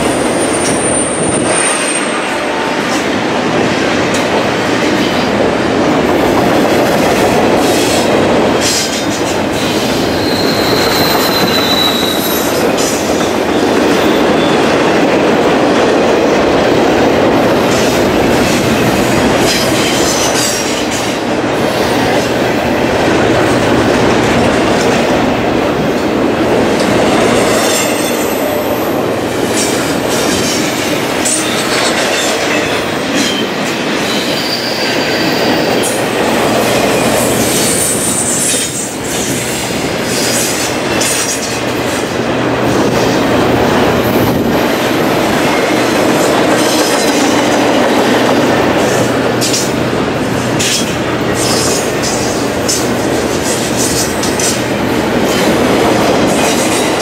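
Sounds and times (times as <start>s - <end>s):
train wheels rumbling on rails: 0.0s - 57.0s
high wheel squeals: 9.6s - 12.8s, 31.3s - 36.0s.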